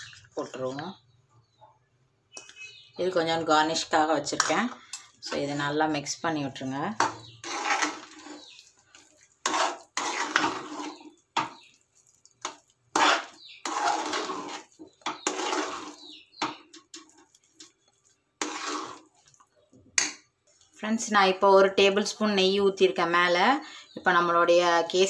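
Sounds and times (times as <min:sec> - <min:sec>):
metal spoon scraping metal pan: 0:04.3 - 0:19.4.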